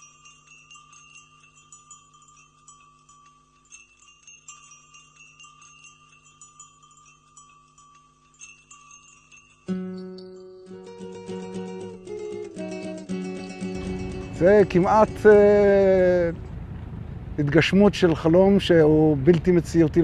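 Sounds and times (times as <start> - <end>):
high chime-like tinkles: 0.0 - 16.3
loud plucked chord: 9.7 - 16.6
steady low drone: 13.6 - 17.4.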